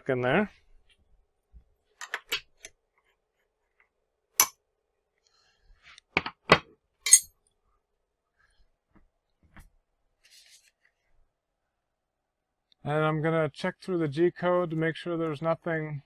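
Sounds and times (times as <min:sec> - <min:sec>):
ringing metal clink: 0:07.1 - 0:07.3
metal tool clinks and knocks: 0:07.1 - 0:07.4.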